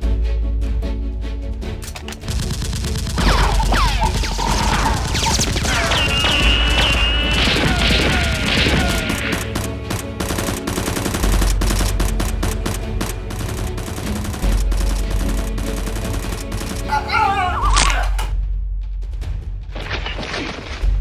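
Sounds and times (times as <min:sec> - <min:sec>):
automatic gunfire: 0:02.2 - 0:17.0.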